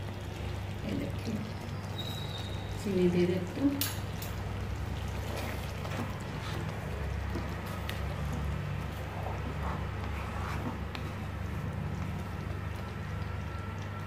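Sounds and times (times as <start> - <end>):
spoon stirring in a pan: 3.6 - 13.9.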